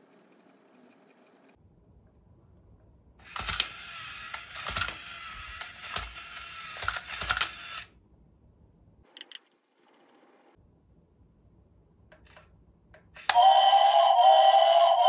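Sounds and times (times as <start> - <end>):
small electric motor and gears: 3.2 - 7.9
plastic clacks of dominoes: 4.4 - 5.0, 5.6 - 7.6.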